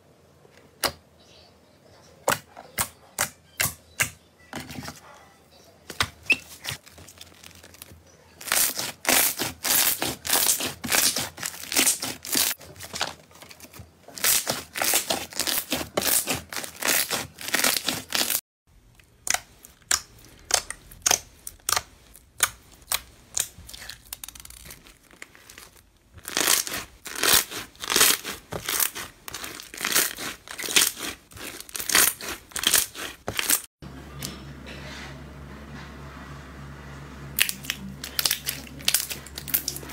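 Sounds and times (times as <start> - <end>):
beaded slime crunching: 6.5 - 18.4, 19.1 - 33.7, 37.4 - 39.9.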